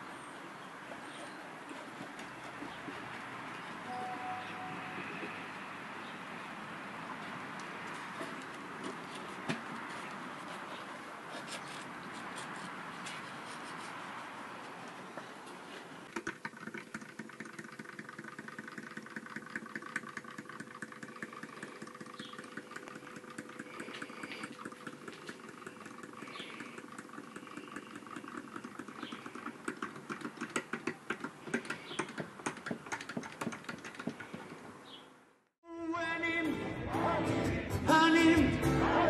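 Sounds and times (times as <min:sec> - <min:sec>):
mechanical toys ticking and clicking: 0:16.1 - 0:34.1.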